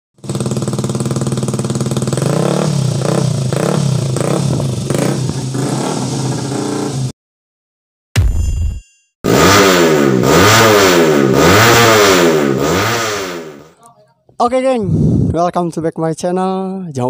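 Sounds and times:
motorcycle engine idling and revving: 0.2 - 7.1, 9.3 - 13.8.

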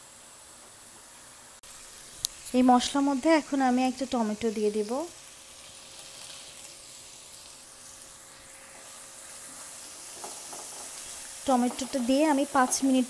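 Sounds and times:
spice paste sizzling in oil: 0.0 - 13.0
spatula stirring in pan: 5.6 - 13.0.

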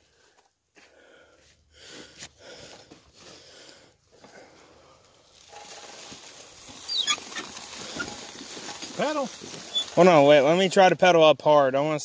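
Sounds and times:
pedal car rolling over dry leaves: 4.8 - 11.2.

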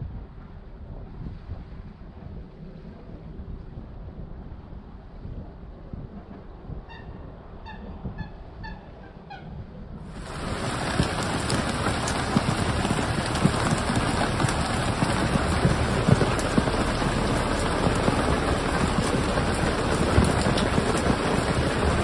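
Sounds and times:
heavy rain falling: 10.1 - 22.0.

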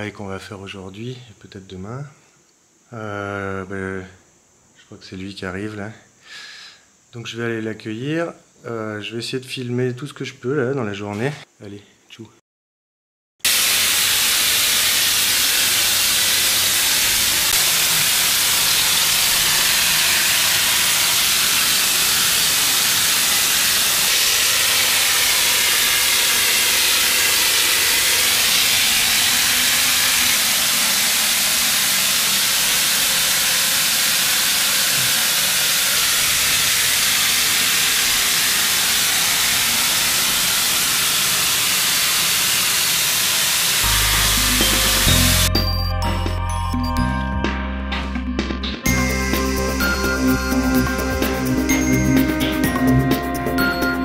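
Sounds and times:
spray nozzle hissing: 13.5 - 45.5.

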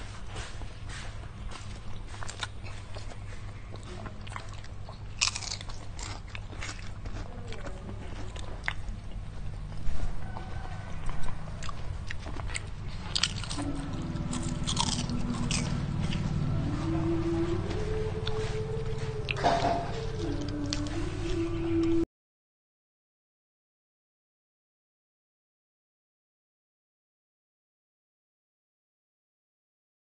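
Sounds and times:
steady low hum: 0.0 - 22.0
crunching potato chips: 1.6 - 9.6, 11.0 - 16.2.

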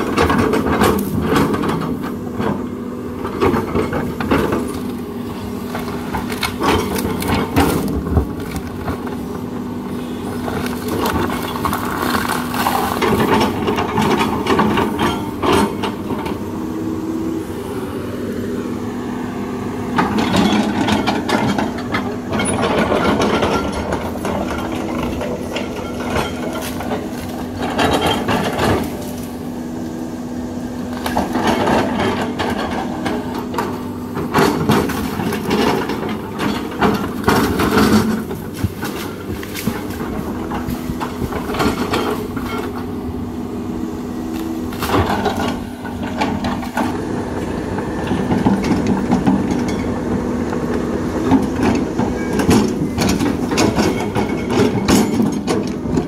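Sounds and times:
excavator diesel engine running: 0.0 - 56.0
wood cracking and crunching: 3.4 - 9.6, 10.2 - 15.0, 22.8 - 29.5.

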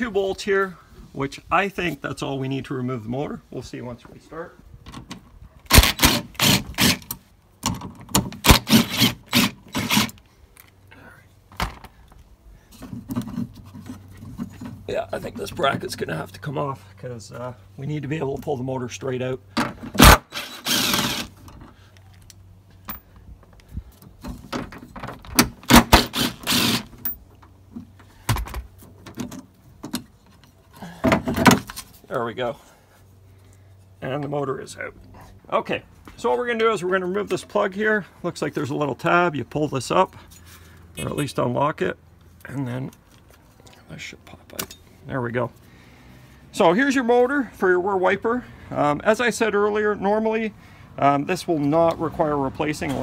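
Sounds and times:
cordless driver trigger bursts: 5.7 - 7.1, 8.4 - 10.2, 20.0 - 21.3, 25.7 - 26.9
cordless driver whirring: 20.0 - 21.4, 25.7 - 26.9.

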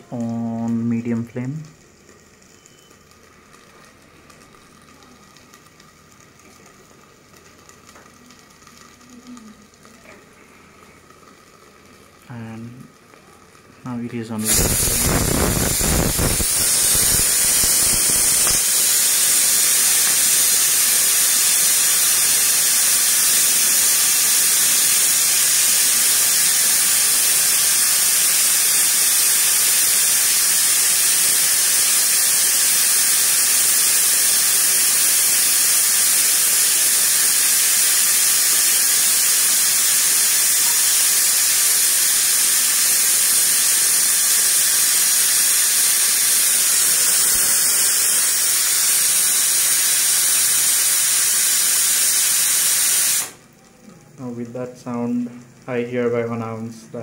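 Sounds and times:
pressure cooker whistling: 2.5 - 3.2, 14.4 - 53.4.

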